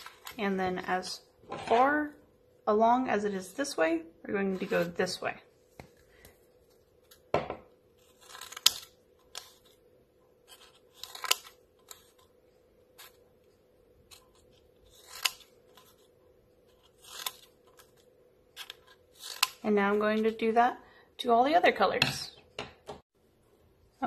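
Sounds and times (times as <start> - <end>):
scissors cutting paper: 8.0 - 9.8, 10.4 - 12.3, 14.1 - 16.1, 16.7 - 19.6.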